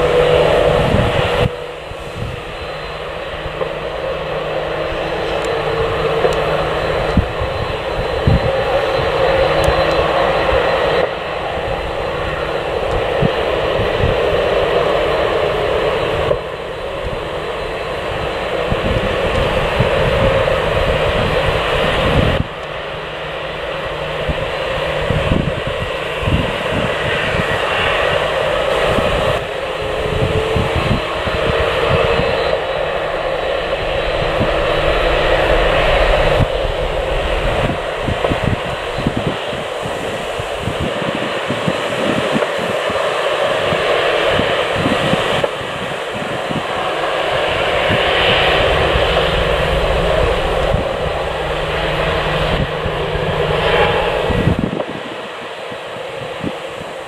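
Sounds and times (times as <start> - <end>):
wind thumping on microphone: 0.0 - 2.6, 5.0 - 10.6, 18.0 - 22.6, 24.2 - 57.0
jet engines running: 0.0 - 57.0.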